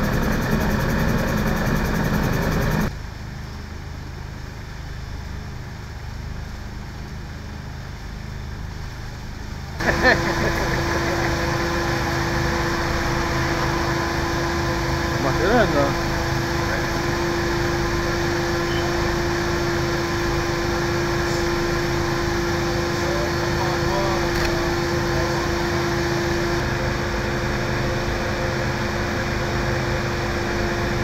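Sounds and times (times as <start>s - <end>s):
machinery humming: 0.0s - 2.9s, 9.6s - 31.0s.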